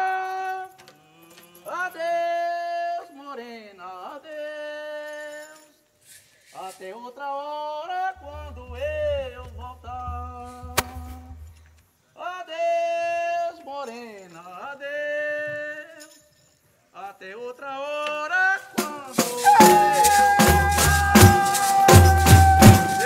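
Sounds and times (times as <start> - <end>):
maracas shaking: 5.2 - 7.1, 18.6 - 23.0
low drum beats: 8.2 - 11.7, 19.2 - 23.0
voices singing long notes: 19.0 - 23.0.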